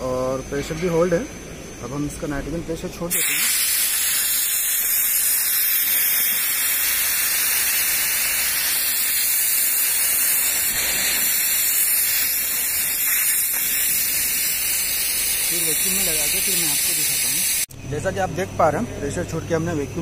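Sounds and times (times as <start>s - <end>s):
loud hiss of escaping gas: 3.1s - 17.7s.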